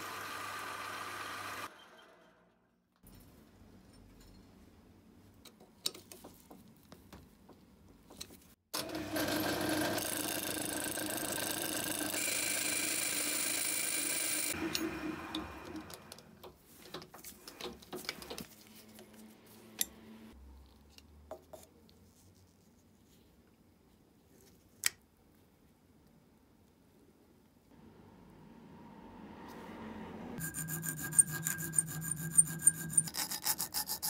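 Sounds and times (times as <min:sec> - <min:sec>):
lathe cutting metal: 0:30.4 - 0:33.7.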